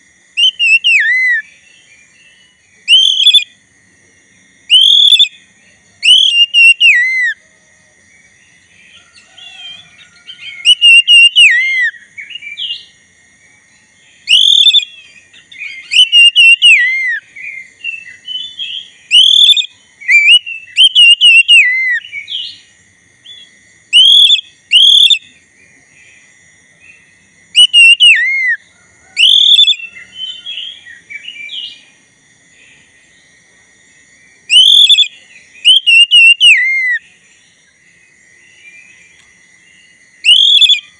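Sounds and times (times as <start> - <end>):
magpie-robin singing: 0.4 - 3.5, 4.7 - 5.4, 6.0 - 7.4, 9.5 - 12.9, 14.2 - 22.7, 24.0 - 25.3, 27.0 - 28.6, 29.2 - 31.8, 34.5 - 37.0, 40.2 - 40.9.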